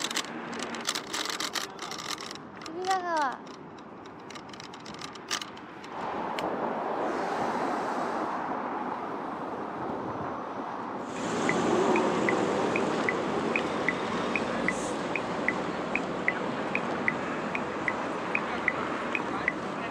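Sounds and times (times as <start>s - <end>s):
wind and road noise: 0.0s - 19.9s.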